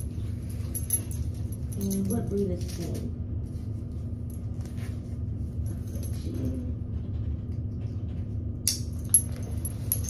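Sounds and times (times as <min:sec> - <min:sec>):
metal tags jingling: 0:00.3 - 0:03.0, 0:09.0 - 0:10.0.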